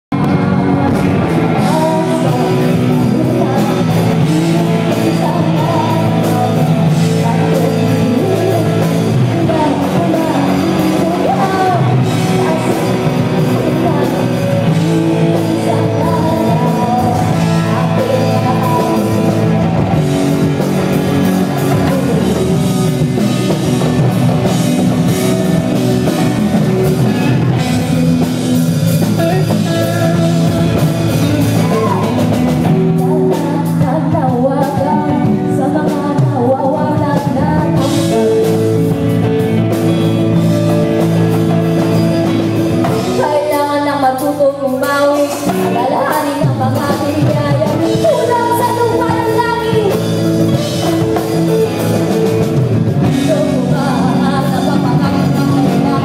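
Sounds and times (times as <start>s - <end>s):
drums: 0.0s - 56.0s
electric guitars: 0.1s - 56.0s
woman singing lead: 0.2s - 56.0s.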